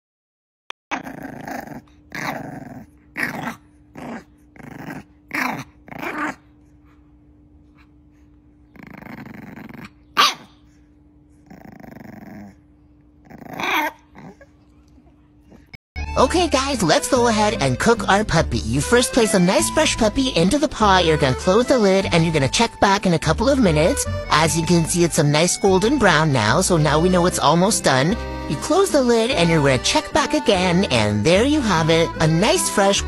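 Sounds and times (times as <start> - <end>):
puppy growling: 0.9 - 7.0, 7.7 - 15.8
puppy barking: 10.2 - 10.6, 13.6 - 14.4.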